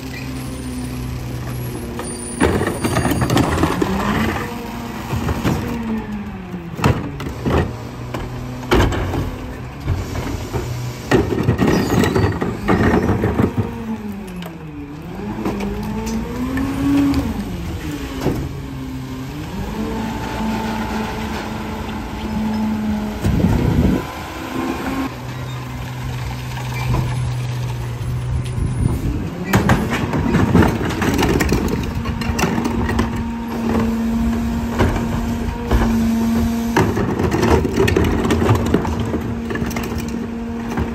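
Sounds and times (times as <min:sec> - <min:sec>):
garbage truck engine revving: 0:00.3 - 0:40.9
carts banging against hopper: 0:06.8 - 0:13.9, 0:29.4 - 0:40.9.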